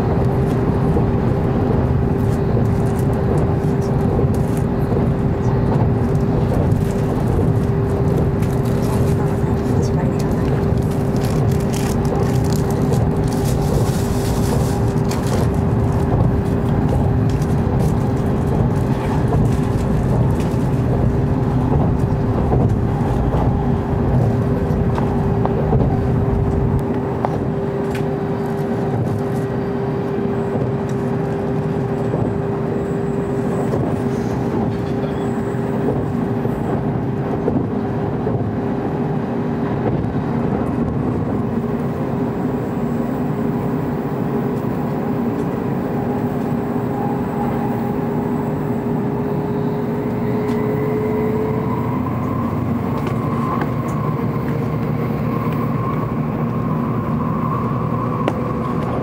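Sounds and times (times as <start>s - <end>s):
constant hum: 0.0s - 59.0s
train rumbling at speed: 0.0s - 59.0s.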